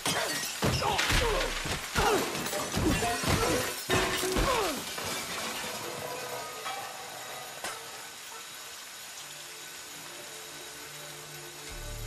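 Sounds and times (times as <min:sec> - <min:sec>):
crashes and shattering: 0:00.0 - 0:07.8.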